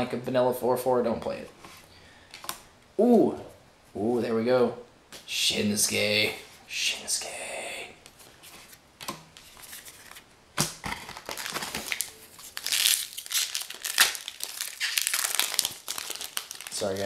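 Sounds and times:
foil wrapper crinkling and tearing: 11.0s - 17.0s.

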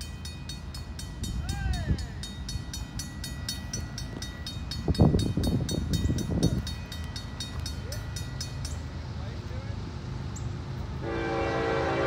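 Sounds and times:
crossing bell ringing: 0.0s - 9.8s
freight train rumble: 0.0s - 12.0s.

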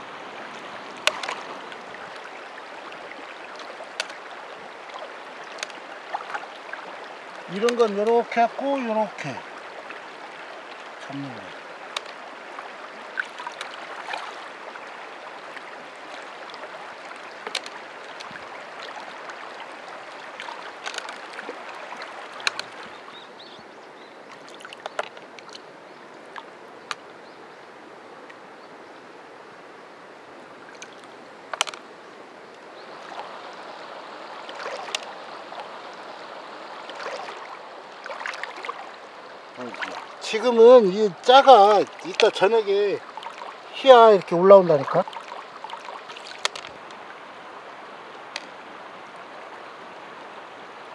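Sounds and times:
stream water flowing: 0.0s - 50.9s
small splashes: 0.4s - 8.0s, 8.6s - 23.2s, 24.3s - 25.7s, 32.8s - 47.1s.

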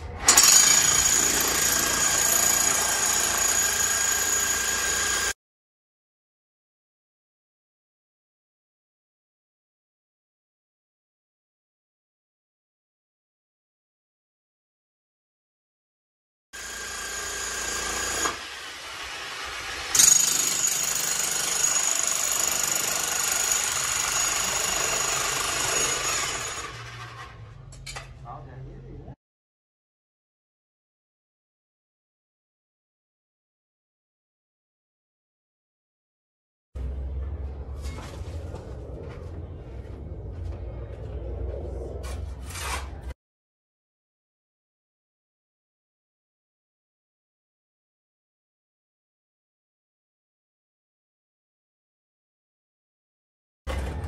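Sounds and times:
jackhammer hammering: 0.3s - 5.4s, 16.6s - 27.1s.

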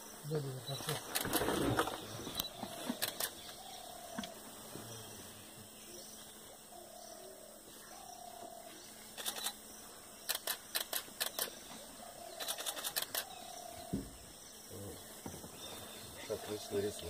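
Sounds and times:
camera shutters clicking: 2.4s - 3.5s, 9.2s - 9.6s, 10.2s - 11.6s, 12.3s - 13.4s.

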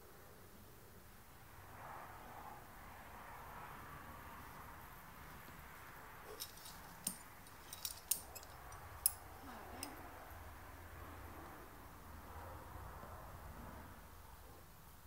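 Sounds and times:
faint background hiss: 0.0s - 15.0s
carabiners clinking: 6.2s - 10.0s.

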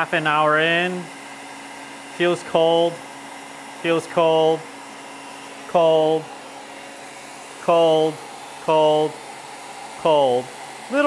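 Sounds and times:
man speaking: 0.0s - 1.1s, 2.2s - 3.0s, 3.8s - 4.7s, 5.7s - 6.4s, 7.6s - 9.3s, 10.0s - 11.0s
heat gun blowing air: 0.0s - 11.0s.

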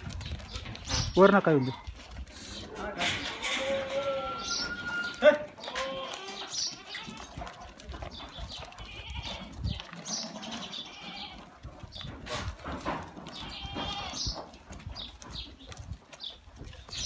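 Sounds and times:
goats bleating: 2.8s - 7.6s, 8.6s - 11.5s, 13.3s - 14.4s.

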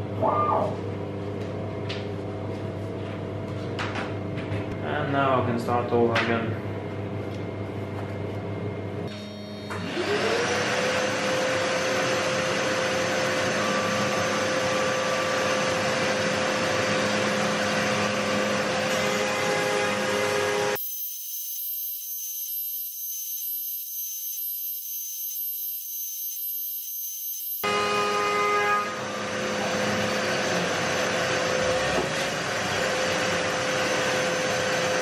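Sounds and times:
shop vacuum motor whining: 9.1s - 35.0s
thin high-pitched whine: 20.7s - 27.7s.

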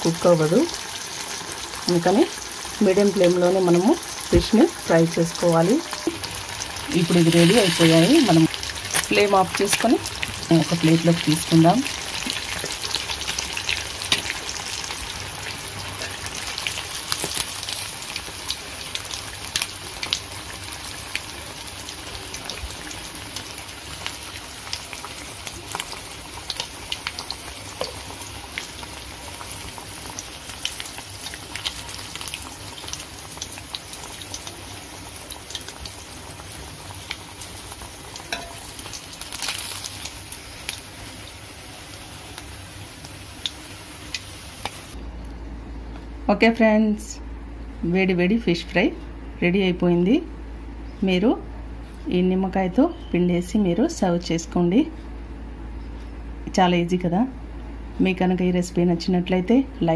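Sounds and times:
fish sizzling in oil: 0.0s - 45.0s.

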